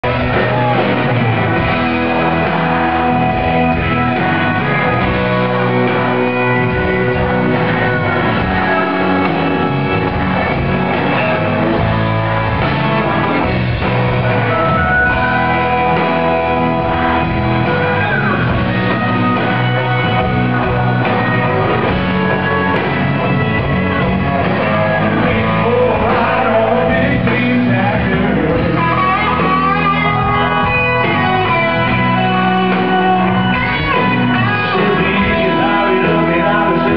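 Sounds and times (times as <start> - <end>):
electric guitars: 0.0 - 36.9
live country-rock band playing: 0.0 - 36.9
man singing into a microphone: 24.6 - 29.2, 33.9 - 36.9.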